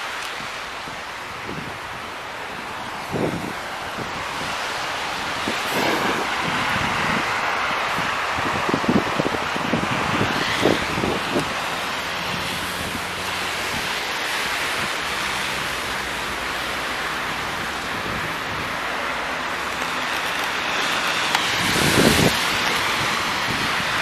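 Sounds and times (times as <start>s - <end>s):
traffic passing on slush: 0.0s - 24.0s
wind rushing: 5.4s - 11.6s.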